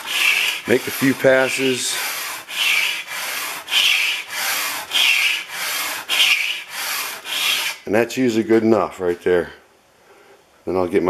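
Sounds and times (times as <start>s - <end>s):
blade rubbing on sandpaper: 0.0s - 7.8s.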